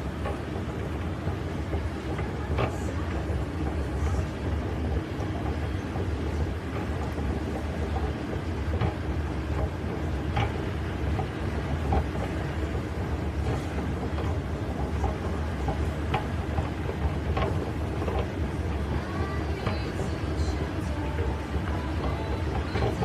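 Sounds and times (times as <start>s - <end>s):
escalator rumble: 0.0s - 23.0s.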